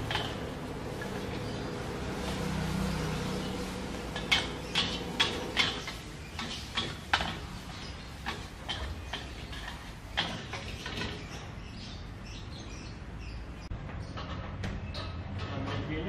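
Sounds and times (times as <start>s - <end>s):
metal spatula clanking on wok: 0.0s - 1.5s, 4.1s - 11.4s.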